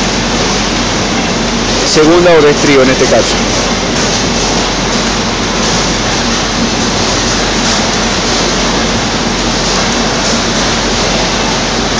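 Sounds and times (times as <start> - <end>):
conveyor machinery running: 0.0 - 11.9.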